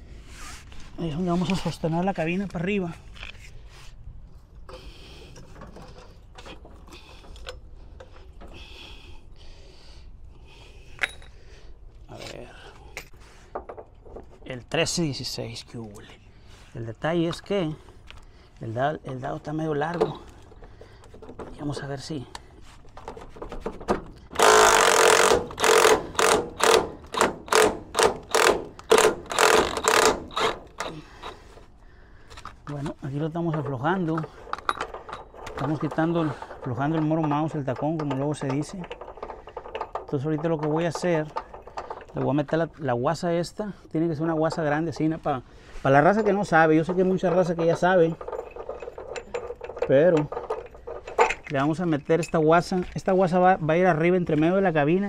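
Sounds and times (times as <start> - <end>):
hand tools clicking and rattling: 19.9 - 31.7, 32.3 - 42.8, 46.0 - 53.2
tool scraping: 22.6 - 42.8, 44.3 - 53.1
impact wrench bursts: 24.3 - 31.4.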